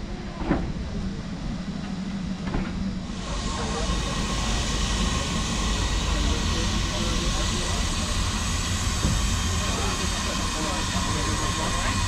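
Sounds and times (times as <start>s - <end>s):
locomotive low rumble: 0.0s - 12.0s
steam hissing: 3.1s - 12.0s.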